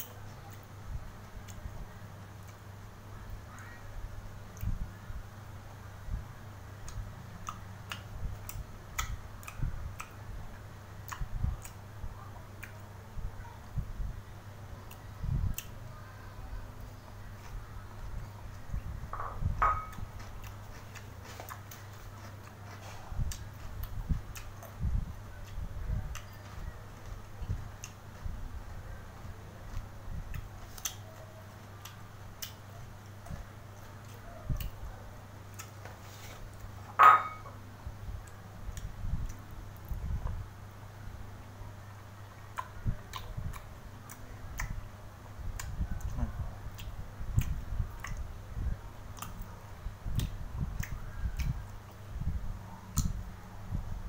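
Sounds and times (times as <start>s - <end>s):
steady low hum: 0.0s - 54.0s
wet mouth chewing clicks: 6.8s - 10.3s, 42.5s - 44.8s, 45.4s - 48.3s, 49.1s - 52.0s, 52.9s - 53.2s
person chewing: 19.8s - 24.8s.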